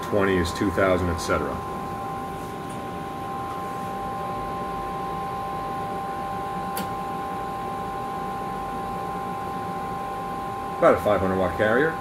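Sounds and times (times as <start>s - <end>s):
cooling fans whirring: 0.0s - 12.0s
sharp click: 6.7s - 7.0s.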